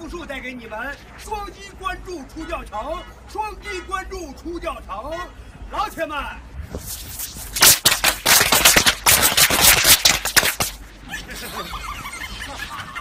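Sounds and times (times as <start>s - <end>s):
firecrackers banging: 6.9s - 10.8s.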